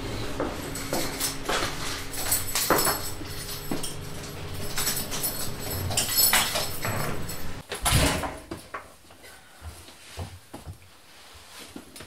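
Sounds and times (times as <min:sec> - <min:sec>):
door being unlocked with clicks: 0:02.3 - 0:07.6.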